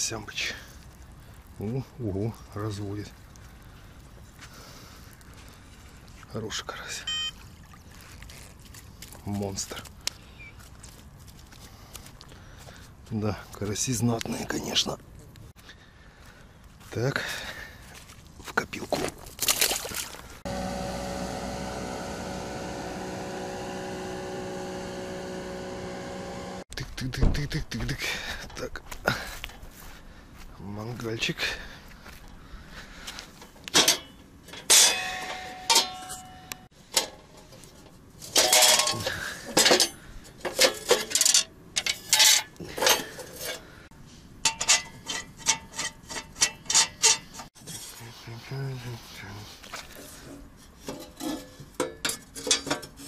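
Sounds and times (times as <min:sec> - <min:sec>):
steady mechanical hum: 0:20.5 - 0:26.6
metal grill parts clattering: 0:33.7 - 0:37.4, 0:38.3 - 0:43.6, 0:50.8 - 0:53.0.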